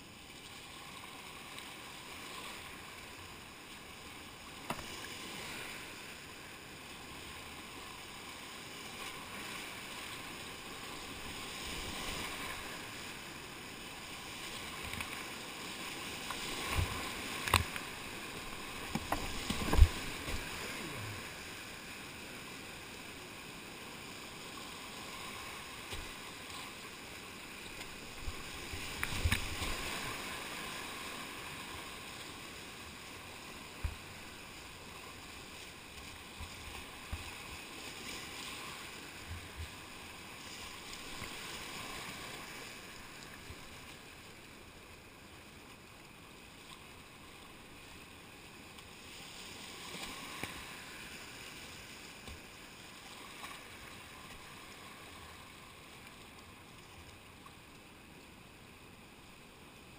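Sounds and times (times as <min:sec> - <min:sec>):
water thumps and splashes on kayak: 0:04.6 - 0:05.0, 0:16.2 - 0:20.8, 0:27.8 - 0:30.4, 0:35.9 - 0:37.6
whitewater rapids rushing: 0:16.6 - 0:22.8.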